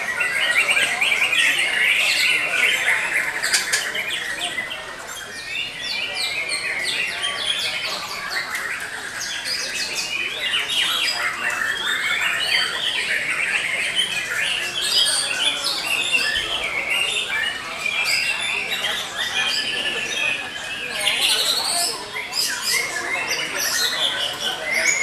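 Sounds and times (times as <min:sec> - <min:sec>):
birds singing: 0:00.0 - 0:25.0.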